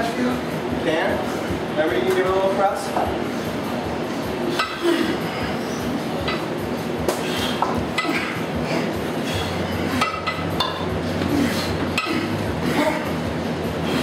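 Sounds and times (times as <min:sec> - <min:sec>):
steady low hum: 0:00.0 - 0:14.0
kettlebells clanking together: 0:12.0 - 0:12.4.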